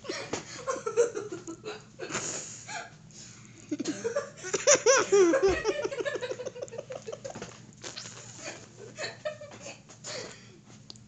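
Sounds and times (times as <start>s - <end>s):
boy laughing hard: 3.8s - 7.4s.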